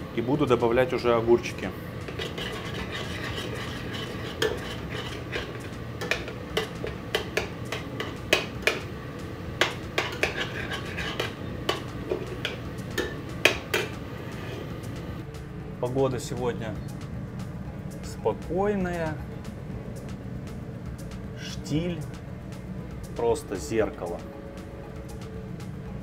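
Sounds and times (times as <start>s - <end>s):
metal spoon stirring in pot: 2.0s - 8.8s, 9.6s - 14.8s.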